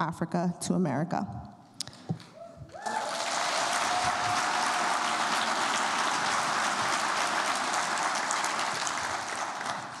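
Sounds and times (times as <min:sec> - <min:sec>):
crowd cheering: 0:02.7 - 0:10.0
audience applause: 0:02.8 - 0:10.0.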